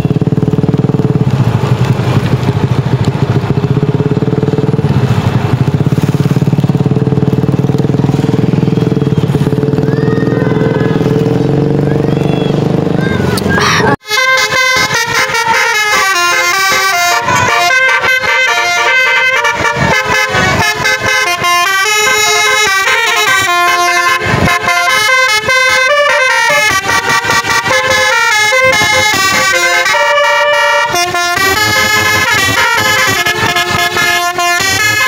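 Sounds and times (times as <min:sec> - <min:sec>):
multi-tone bus horn melody: 0:08.1 - 0:35.0.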